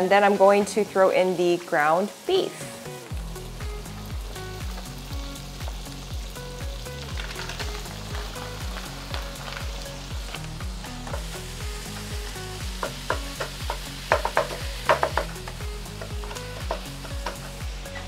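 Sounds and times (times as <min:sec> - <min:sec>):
meat sizzling in a frying pan: 0:00.0 - 0:18.0
soft music with bass beat: 0:02.6 - 0:18.0
spoon knocking against pan: 0:12.8 - 0:17.6.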